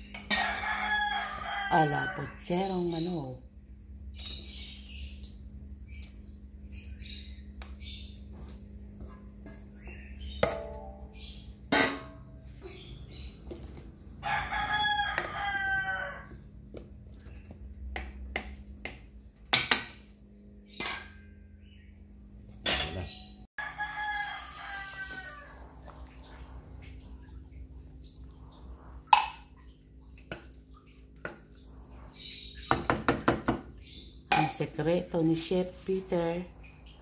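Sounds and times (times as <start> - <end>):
rooster crowing: 0.2 - 2.5, 14.2 - 16.4, 23.6 - 25.9.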